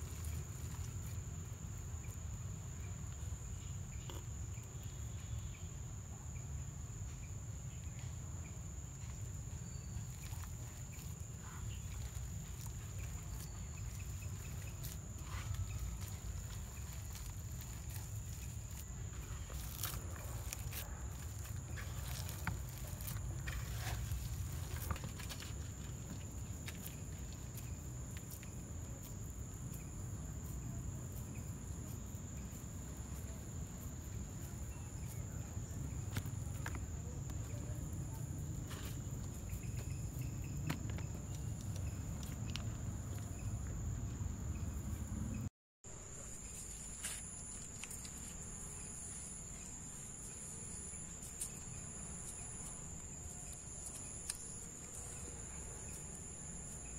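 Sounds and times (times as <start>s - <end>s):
insect chirring: 0.0s - 56.9s
hands working dough: 10.0s - 28.4s.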